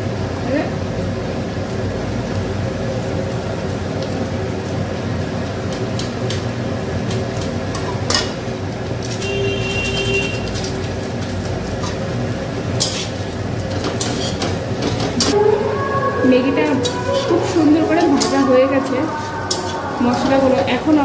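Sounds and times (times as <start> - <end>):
noodles frying in a pan: 0.0 - 15.2
kitchen rumble and hum: 0.0 - 21.0
spatula scraping a pan: 12.8 - 14.6.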